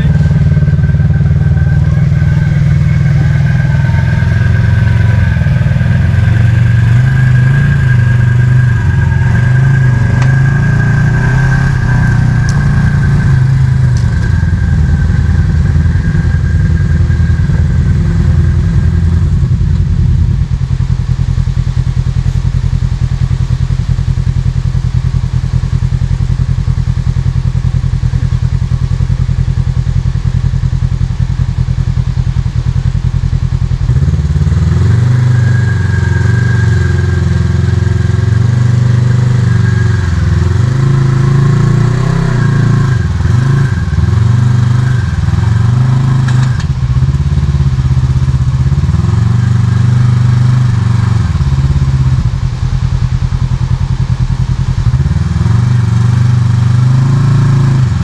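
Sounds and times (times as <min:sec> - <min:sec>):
thin high whine: 0:00.0 - 0:22.8, 0:33.8 - 0:49.2
engine running at low speed: 0:00.0 - 0:58.0.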